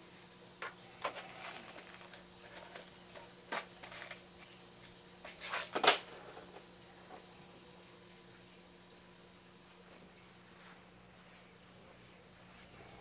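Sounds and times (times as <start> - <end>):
pellets rattling in a tin: 1.0 - 4.6, 5.2 - 6.2.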